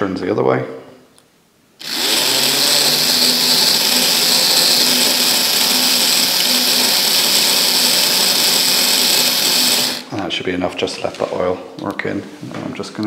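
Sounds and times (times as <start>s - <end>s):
small electric motor whirring: 1.8s - 10.1s.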